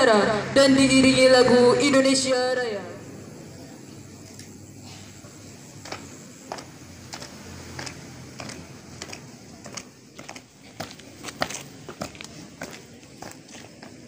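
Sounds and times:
footsteps marching on pavement: 5.1s - 14.0s.

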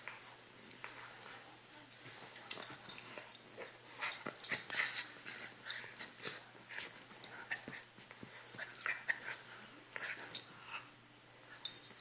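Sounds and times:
dogs play-fighting noises: 0.0s - 12.0s.

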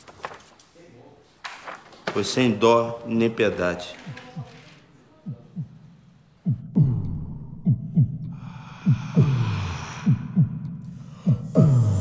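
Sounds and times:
heartbeat double thump: 5.2s - 5.8s, 6.4s - 12.0s.

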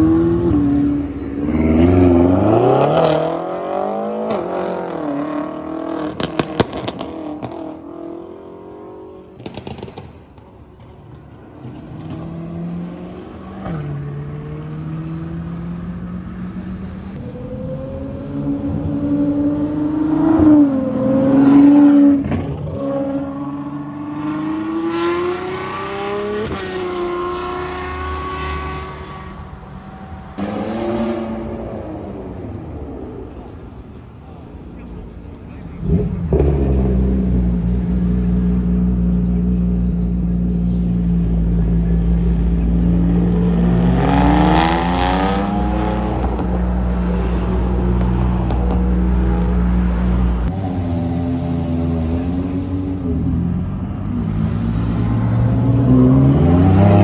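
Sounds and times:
cars accelerating past: 0.0s - 34.0s, 34.9s - 57.0s
exhaust crackles and pops: 9.4s - 11.2s.

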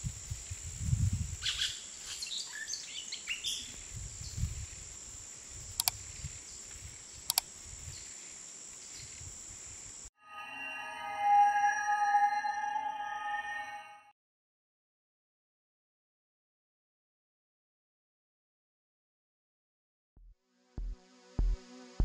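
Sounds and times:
steady high-pitched tone: 10.2s - 14.1s.

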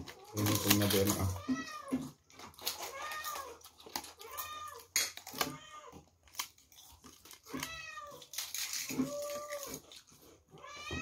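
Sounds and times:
cat meowing: 0.0s - 6.1s, 7.4s - 9.9s, 10.5s - 11.0s.

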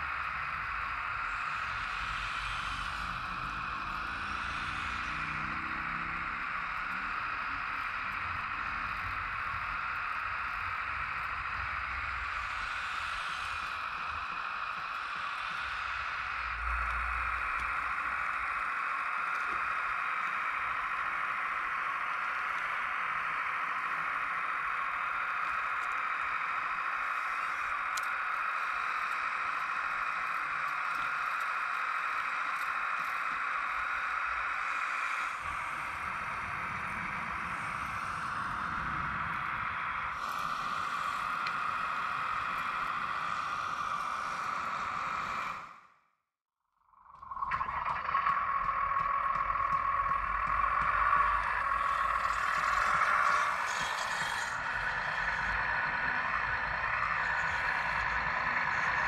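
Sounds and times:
hydraulic pump whirring: 47.5s - 59.0s.

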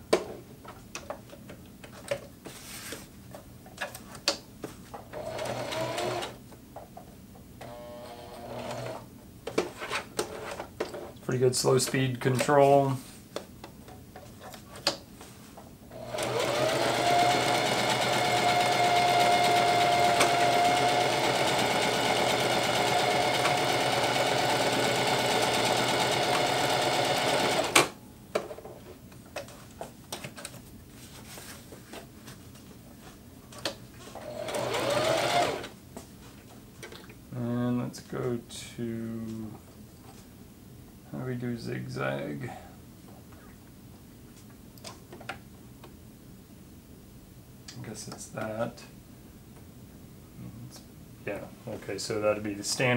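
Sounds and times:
sewing machine sewing: 5.1s - 6.4s, 7.6s - 9.0s, 16.0s - 27.9s, 34.2s - 35.7s
sewing machine motor whine: 5.2s - 6.4s, 7.6s - 9.0s, 16.0s - 27.9s, 34.2s - 35.7s.

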